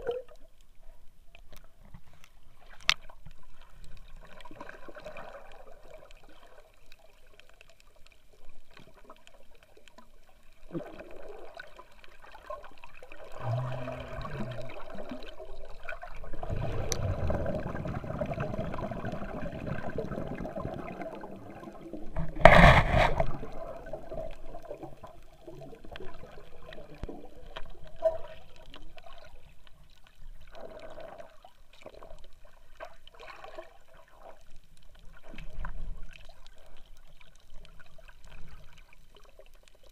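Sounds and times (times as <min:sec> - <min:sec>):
muffled underwater gurgling: 0:13.2 - 0:28.8.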